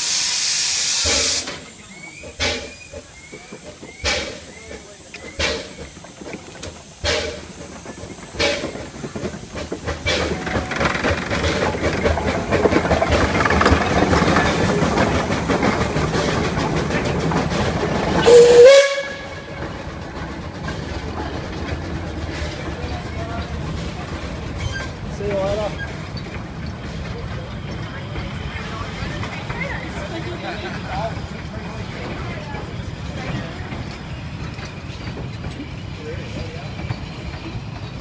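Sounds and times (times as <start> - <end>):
steam locomotive chuffing: 0.0 - 38.0
carriages rolling by: 1.5 - 38.0
steam whistle blast: 18.2 - 19.3.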